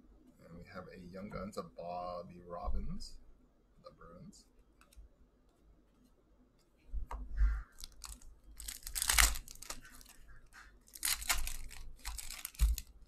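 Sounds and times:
plastic wrappers tearing and crinkling: 0:07.7 - 0:13.0.

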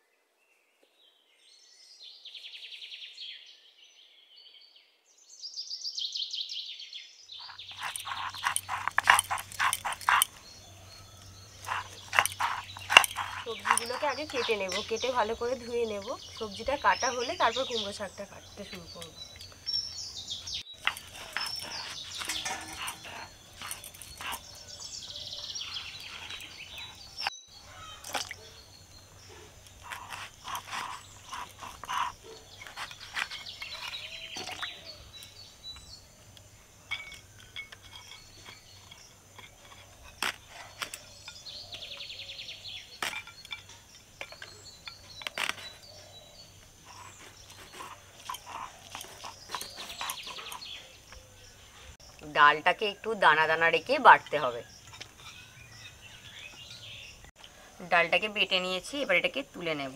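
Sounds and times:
birds chirping: 0:00.0 - 0:59.9
knife cutting vegetables: 0:07.6 - 0:10.4, 0:11.6 - 0:15.7, 0:29.7 - 0:34.6.

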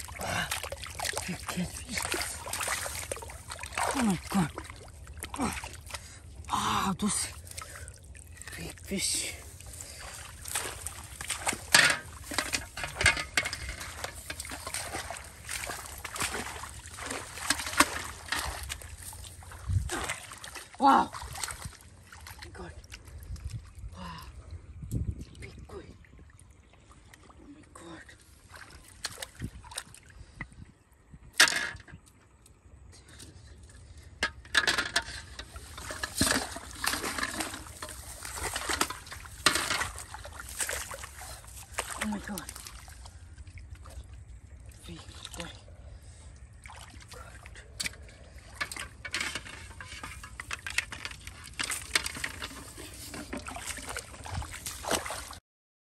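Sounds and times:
water sloshing: 0:00.0 - 0:24.0, 0:25.2 - 0:30.4, 0:33.4 - 0:55.4.

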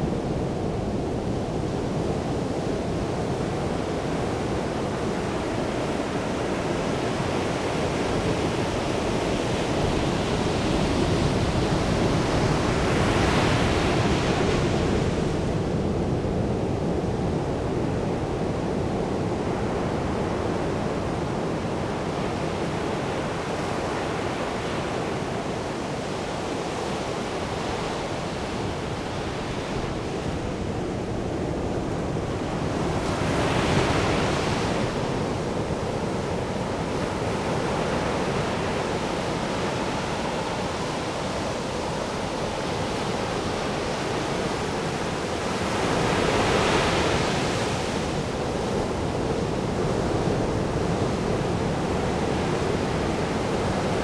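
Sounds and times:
ocean surf breaking on beach: 0:00.0 - 0:54.0.

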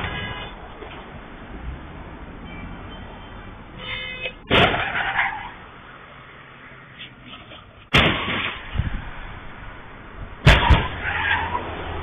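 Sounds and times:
vehicle crash: 0:00.0 - 0:01.1, 0:04.3 - 0:05.6, 0:07.2 - 0:09.1, 0:10.4 - 0:12.0
road noise: 0:00.0 - 0:12.0.

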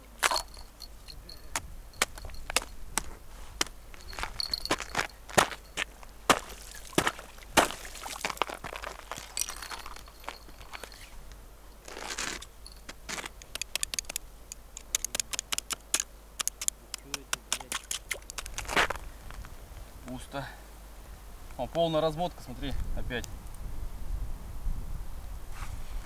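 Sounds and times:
ice and snow crunching: 0:00.0 - 0:00.7, 0:01.6 - 0:11.2, 0:11.8 - 0:13.8, 0:17.6 - 0:19.4
small clicks: 0:13.1 - 0:18.8.

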